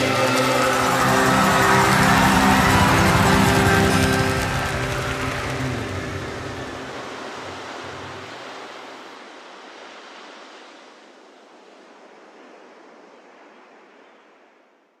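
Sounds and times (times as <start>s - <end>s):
song notes: 0.0s - 8.7s
ocean waves rushing: 0.0s - 14.0s.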